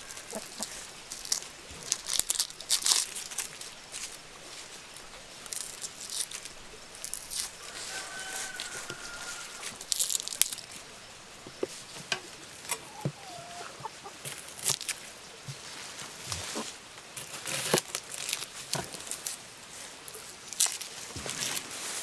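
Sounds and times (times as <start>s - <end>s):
chickens clucking: 0.0s - 1.2s, 7.6s - 9.9s, 10.8s - 14.6s.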